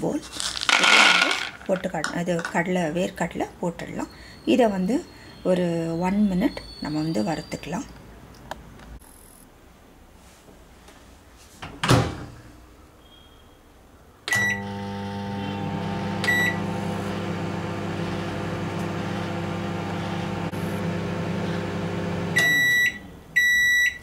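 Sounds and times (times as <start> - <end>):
microwave humming: 14.3 - 23.5
microwave beep: 14.3 - 24.0.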